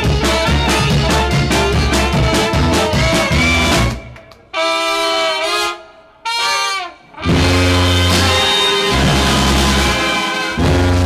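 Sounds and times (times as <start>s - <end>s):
sousaphone bass notes: 0.0s - 4.2s, 7.2s - 11.0s
brass band playing: 0.0s - 11.0s.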